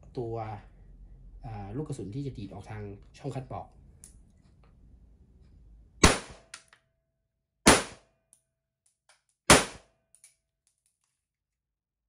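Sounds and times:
blank pistol shots: 6.0 - 6.5, 7.7 - 8.1, 9.5 - 9.9.

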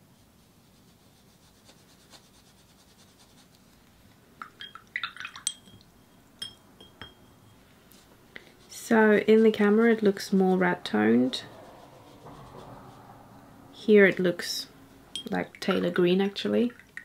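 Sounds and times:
brushing paint on paper: 0.0 - 4.0, 7.6 - 14.4
brush clinking against glass: 4.4 - 8.0, 15.1 - 17.0
paintbrush swished in water: 7.9 - 14.3.

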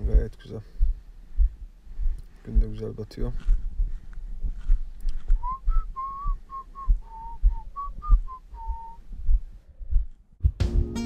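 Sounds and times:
footsteps on soft sand: 0.0 - 10.5
person whistling a tune: 5.4 - 9.0.

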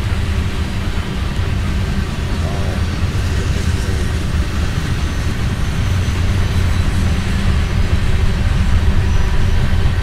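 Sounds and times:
freight train wheels rumbling: 0.0 - 10.0.

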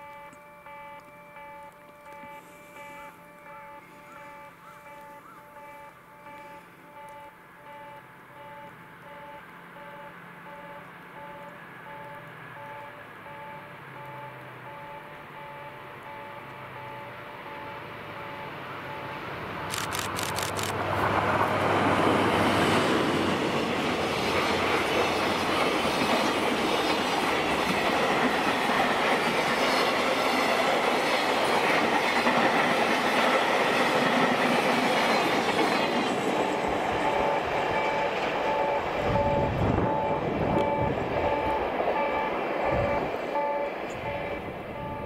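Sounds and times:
locomotive engine running: 0.0 - 45.0
train wheels clattering on rails: 21.0 - 45.0.

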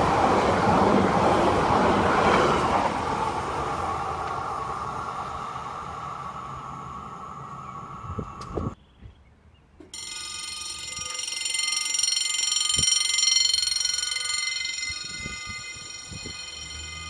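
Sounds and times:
level crossing warning bell: 9.9 - 17.0.

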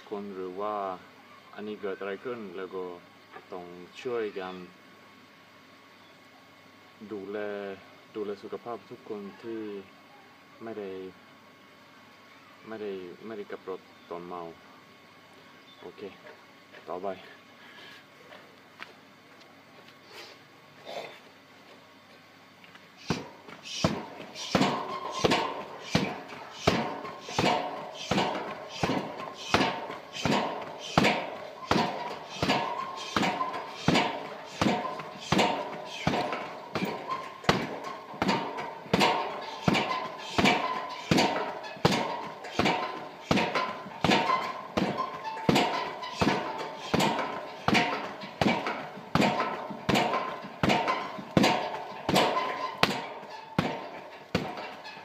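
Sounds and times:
kicks thudding on heavy bag: 23.0 - 54.8.

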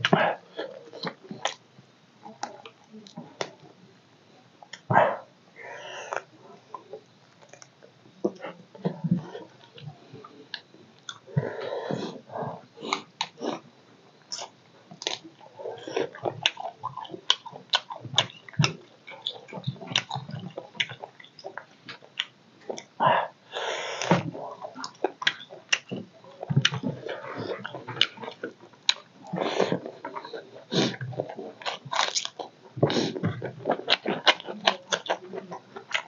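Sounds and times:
wet chewing and lip-smacking: 14.3 - 22.9, 24.6 - 32.5, 33.1 - 36.0.

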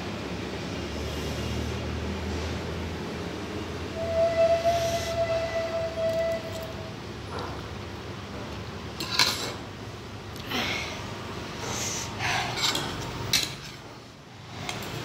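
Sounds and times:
noisy breathing: 0.8 - 2.8, 10.4 - 12.8.

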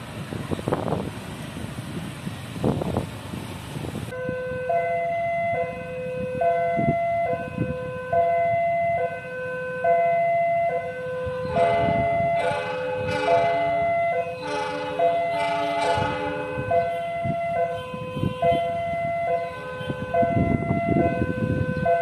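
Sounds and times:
road traffic: 0.0 - 22.0
level crossing alarm two-tone: 4.2 - 22.0.

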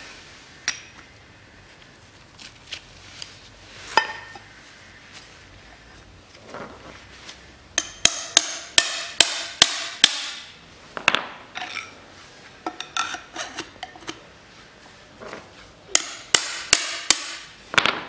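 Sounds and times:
hammer striking steel: 7.8 - 10.5, 15.9 - 17.5.

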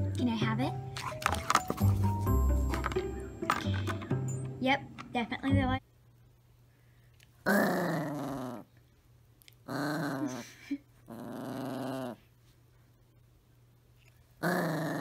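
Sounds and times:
small dog growling: 7.4 - 8.7, 9.6 - 12.3, 14.4 - 15.0.

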